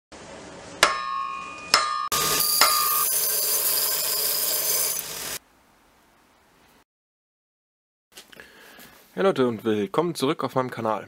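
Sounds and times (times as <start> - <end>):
hammer blows ringing on anvil: 0.8 - 3.2
belt sander grinding steel: 2.1 - 5.4.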